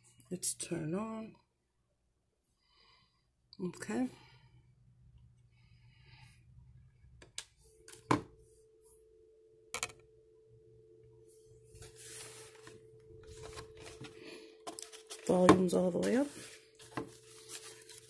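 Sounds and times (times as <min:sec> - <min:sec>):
telephone dial tone: 0:12.2 - 0:15.7.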